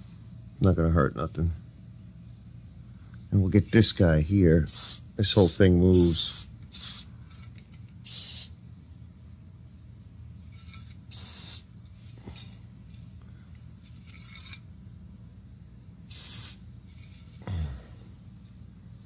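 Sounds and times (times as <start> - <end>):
aerosol can spraying hiss: 4.7 - 5.1, 5.9 - 7.1, 8.0 - 8.6, 11.1 - 11.7, 16.1 - 16.6.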